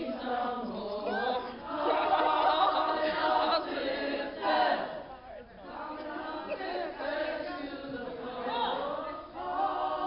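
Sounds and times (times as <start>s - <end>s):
women singing together: 0.0s - 10.0s.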